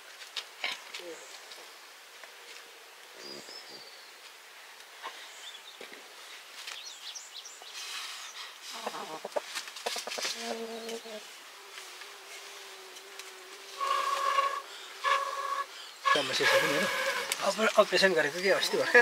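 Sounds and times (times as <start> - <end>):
small birds chirping: 3.1 - 9.2.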